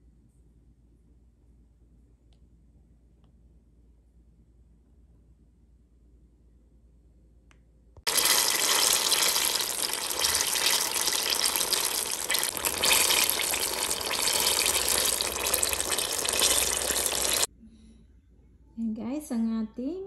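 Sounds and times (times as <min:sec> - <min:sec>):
oil sizzling in a deep fryer: 0:08.1 - 0:17.5.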